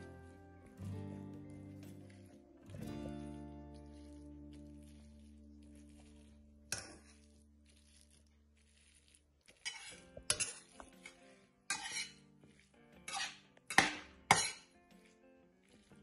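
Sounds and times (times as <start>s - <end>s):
metal spoon scraping a pan: 3.8s - 16.0s.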